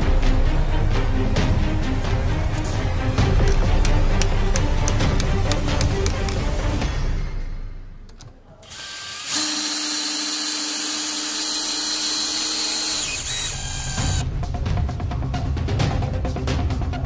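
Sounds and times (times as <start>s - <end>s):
background music: 0.0s - 17.0s
cordless drill whining: 8.6s - 14.2s.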